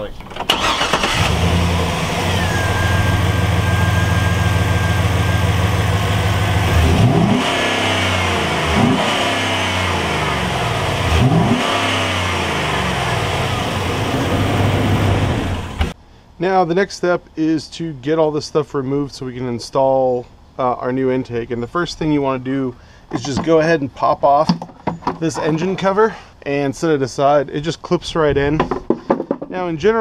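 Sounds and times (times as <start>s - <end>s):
engine idling and revving: 0.5s - 16.0s.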